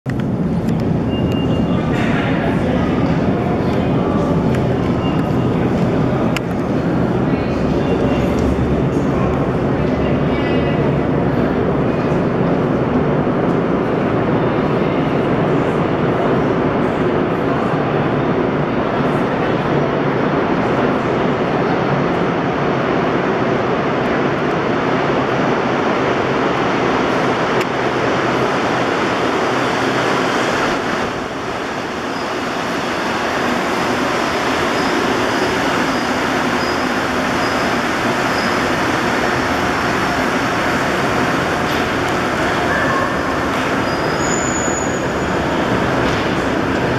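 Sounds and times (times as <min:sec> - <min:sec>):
metro train rumbling: 0:00.0 - 0:46.9.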